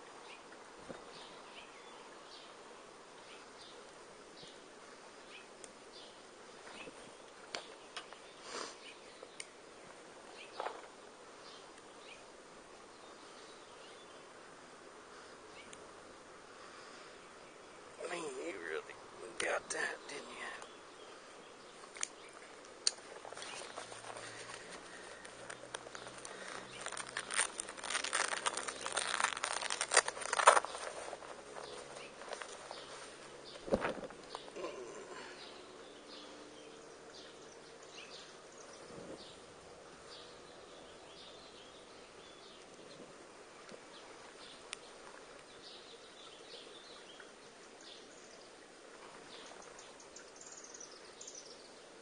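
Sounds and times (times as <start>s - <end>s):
faint outdoor ambience: 0.0s - 52.0s
rustling and crackling: 3.4s - 11.9s, 21.7s - 35.5s.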